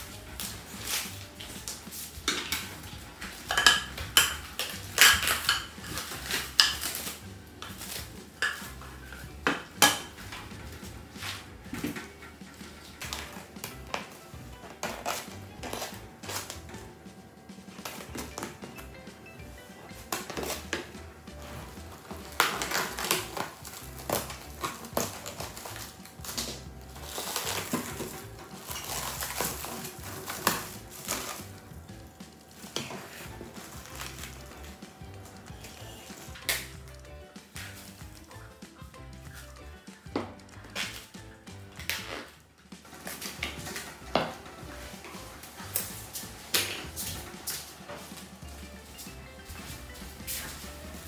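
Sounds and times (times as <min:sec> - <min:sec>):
cling wrap crinkling and tearing: 0:00.0 - 0:03.8, 0:04.5 - 0:09.2, 0:21.4 - 0:37.0, 0:40.6 - 0:49.1
background music: 0:00.0 - 0:51.0.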